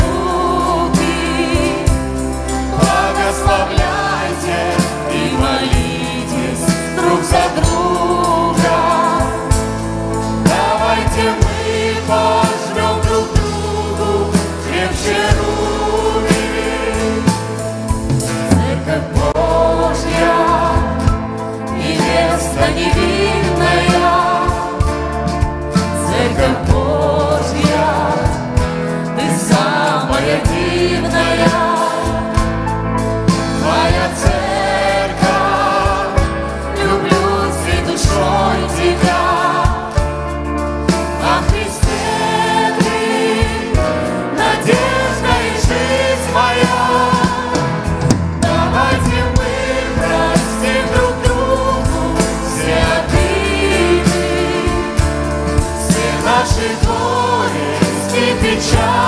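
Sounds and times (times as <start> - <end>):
people singing worship song: 0.0 - 59.0
steady bass: 0.0 - 59.0
regular beat: 44.4 - 55.4.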